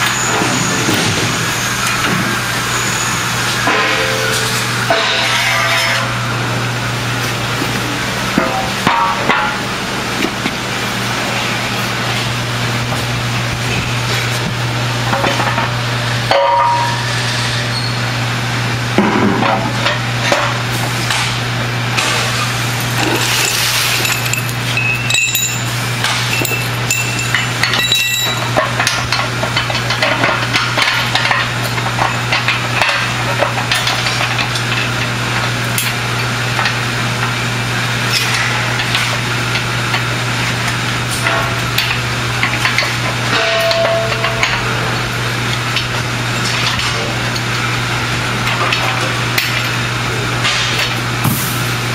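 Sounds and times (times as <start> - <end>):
short ringing metal tones: 26.3 - 28.5.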